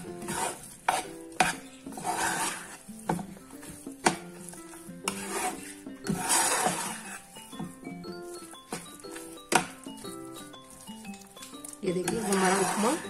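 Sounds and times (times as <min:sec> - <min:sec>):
spoon scraping frying pan: 0:00.0 - 0:13.0.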